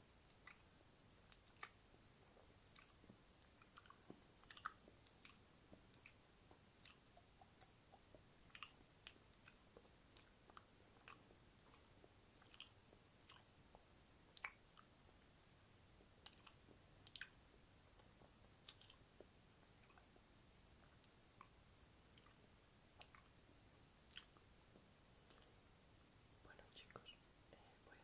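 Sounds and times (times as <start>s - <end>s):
wet mouth clicks and smacks: 0.3s - 1.8s, 2.6s - 15.6s, 16.2s - 17.4s, 18.0s - 19.0s, 19.6s - 20.1s, 20.8s - 22.4s, 23.0s - 23.3s, 24.1s - 24.5s, 25.2s - 25.5s.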